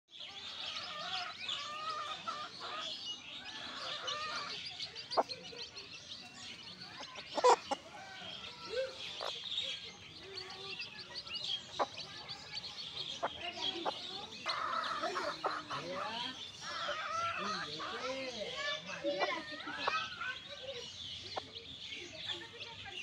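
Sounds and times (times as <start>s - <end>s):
chicks peeping: 0.1s - 23.0s
hen clucking: 0.4s - 21.6s.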